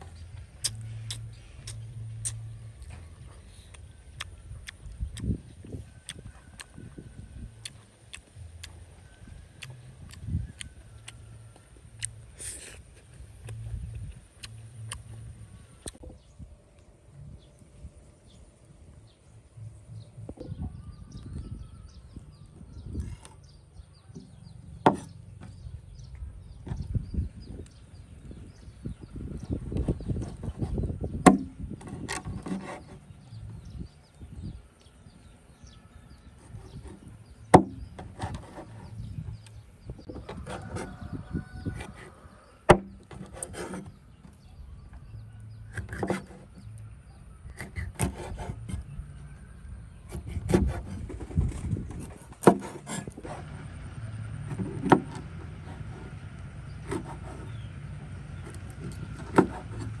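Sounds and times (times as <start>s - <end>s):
handling knocks and scrapes: 22.7s - 27.6s, 29.0s - 34.4s, 36.2s - 46.9s, 49.9s - 60.0s.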